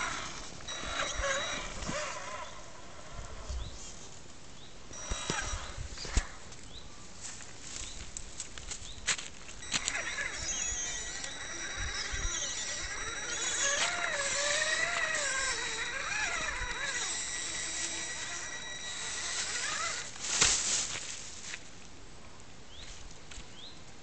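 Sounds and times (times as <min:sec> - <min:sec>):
rc truck motor whining: 0:00.0 - 0:03.8, 0:04.9 - 0:06.4, 0:09.6 - 0:20.2.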